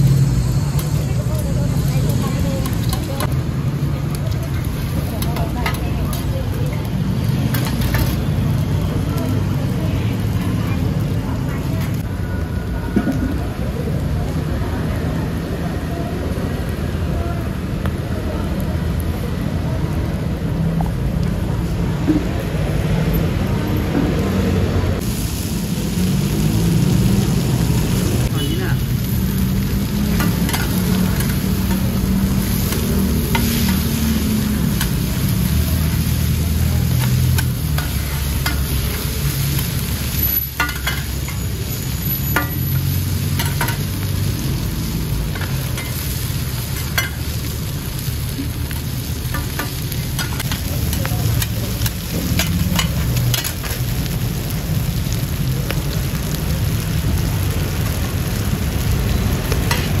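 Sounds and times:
food frying on iron pan: 0.0 - 60.0
metal spatulas scraping: 40.5 - 41.4.

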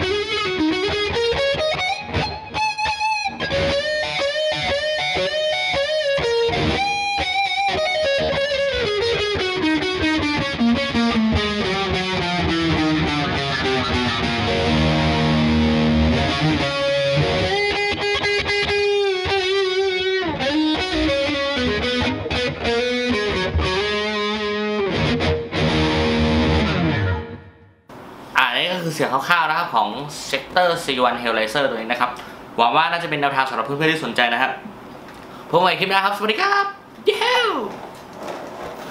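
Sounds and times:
distorted electric guitar: 0.0 - 27.8.

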